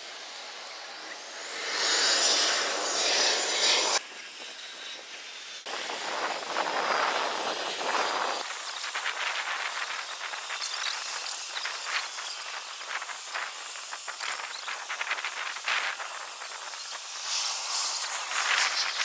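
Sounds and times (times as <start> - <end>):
short rising whine: 0.0 - 4.0
jet aircraft hiss: 0.0 - 10.4.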